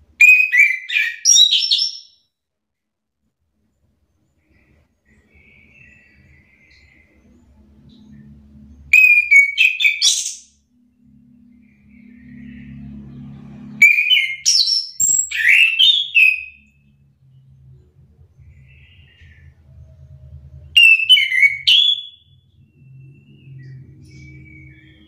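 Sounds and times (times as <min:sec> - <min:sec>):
bird whistled song bursts: 0:00.2 - 0:02.2, 0:08.9 - 0:10.5, 0:13.8 - 0:16.6, 0:20.8 - 0:25.0.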